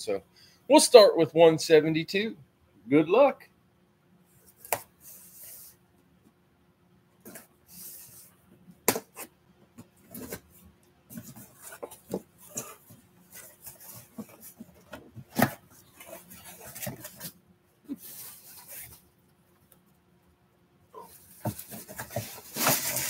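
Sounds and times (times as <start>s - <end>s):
cardboard flaps rustling: 8.9s - 17.4s, 21.2s - 23.0s.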